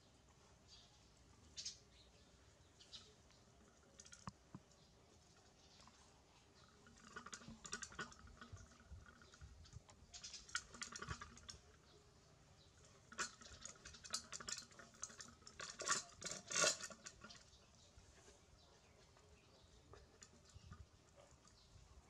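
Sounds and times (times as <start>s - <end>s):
dog eating from metal pot: 6.6s - 11.9s, 12.8s - 17.7s.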